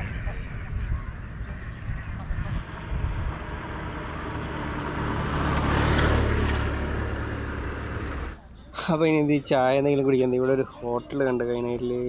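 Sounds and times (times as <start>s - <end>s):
vehicle passing by: 0.0s - 8.6s.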